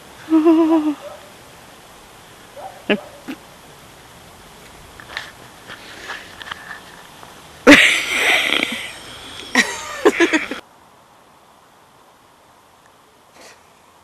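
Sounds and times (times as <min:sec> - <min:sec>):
loud breathy burst: 0:07.7 - 0:09.7.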